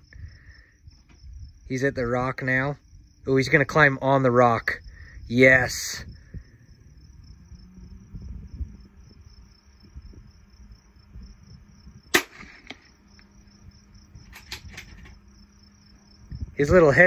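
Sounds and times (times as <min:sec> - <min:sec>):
crickets chirping: 0:00.0 - 0:17.0
rifle shot: 0:12.1 - 0:13.0.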